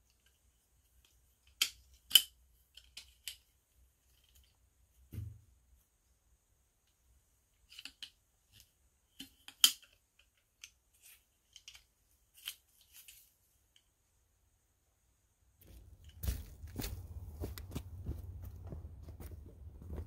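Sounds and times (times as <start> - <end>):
soft thump: 5.1 - 5.4.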